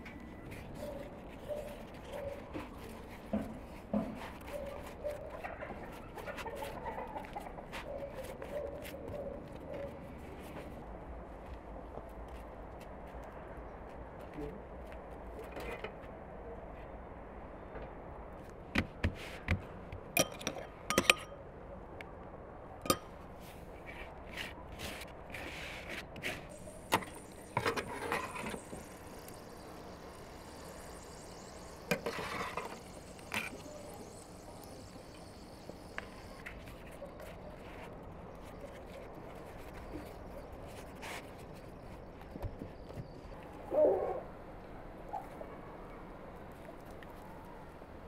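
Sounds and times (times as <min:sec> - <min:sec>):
rustling handling sounds: 0:00.0 - 0:15.1.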